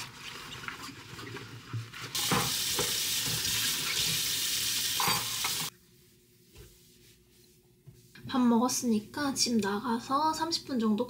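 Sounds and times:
water running into sink: 0.0 - 5.7.

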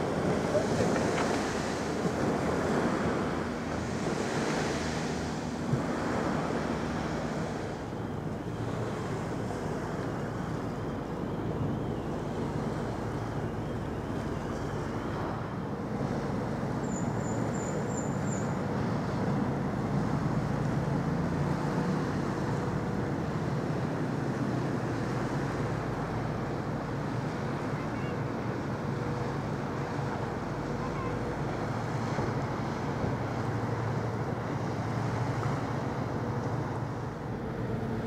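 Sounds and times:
water wash: 0.0 - 10.6
ferry engines droning: 0.0 - 38.0.

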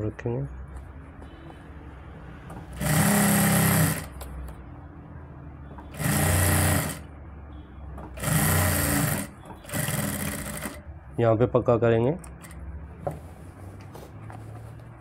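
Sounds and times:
sewing machine running: 2.7 - 4.2, 5.9 - 7.1, 8.2 - 10.8.

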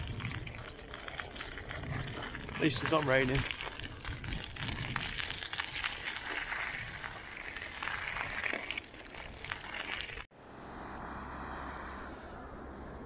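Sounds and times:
bicycle tyres crunching on gravel: 0.0 - 10.3.

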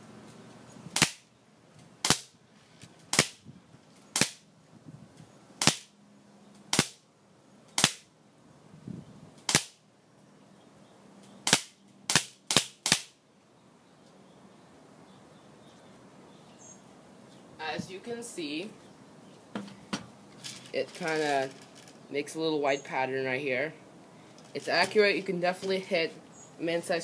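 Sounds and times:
airsoft pistol cracks: 1.0 - 1.2, 2.0 - 2.3, 3.1 - 3.4, 4.2 - 4.4, 5.6 - 5.9, 6.7 - 7.0, 7.8 - 8.1, 9.4 - 9.8, 11.4 - 13.2.

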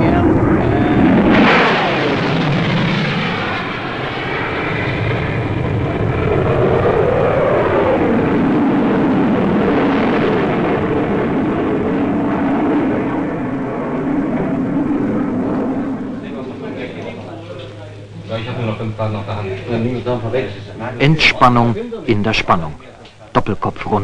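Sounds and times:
jet fighter roaring past: 0.0 - 18.0.

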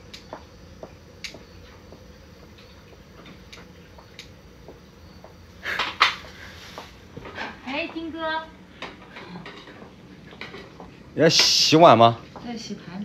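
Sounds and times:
rustle and clatter: 0.0 - 11.7
dishes and utensils clicking: 8.8 - 11.6.

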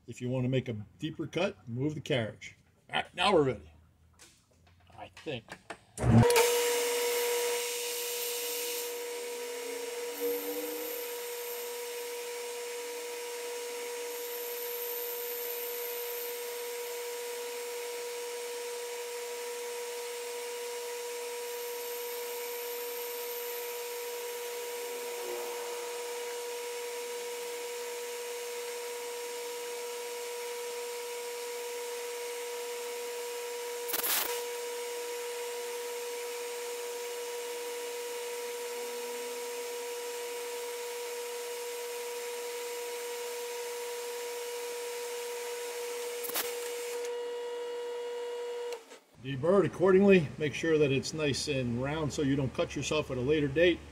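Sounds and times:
metal lathe humming: 6.3 - 12.8, 21.6 - 29.8.

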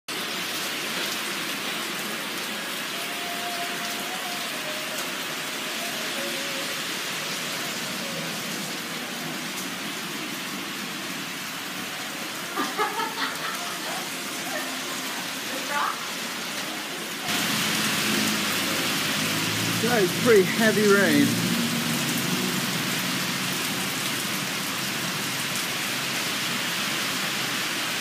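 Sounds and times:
heavy rain: 0.1 - 28.0.

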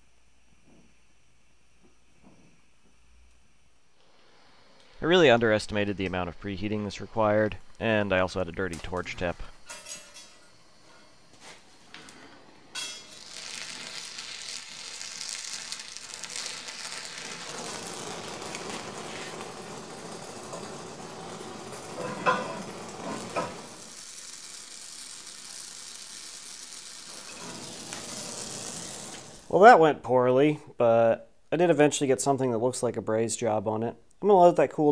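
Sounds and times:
gas torch flame hissing: 10.6 - 29.6.

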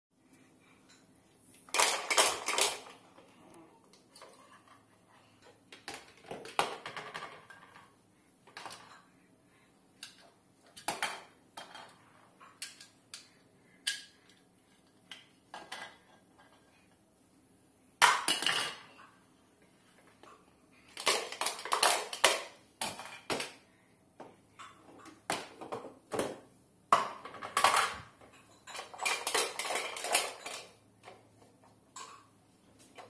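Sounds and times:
toy pots clattering and clinking: 1.7 - 3.0, 10.0 - 14.3, 15.1 - 16.7, 18.0 - 19.1, 20.9 - 23.6, 27.0 - 31.2, 31.9 - 32.4.

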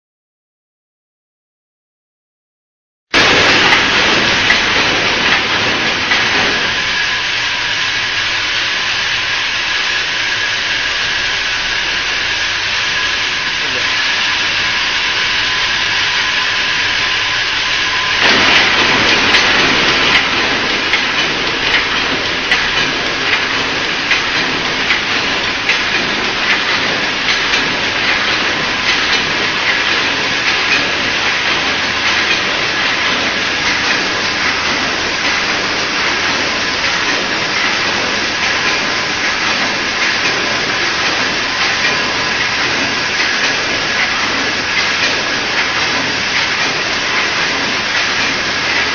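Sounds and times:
fast metallic clatter: 3.2 - 7.1, 18.1 - 48.9
machine hissing with high tone: 3.2 - 30.4.

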